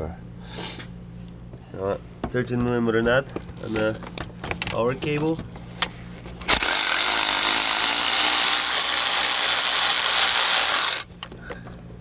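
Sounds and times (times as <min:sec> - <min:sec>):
power ratchet spinning: 0:06.4 - 0:11.1.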